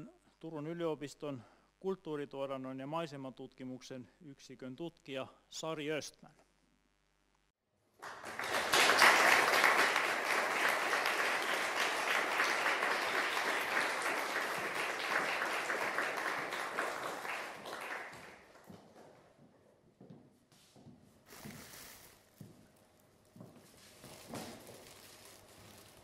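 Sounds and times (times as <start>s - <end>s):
audience applauding: 8.0s - 18.7s.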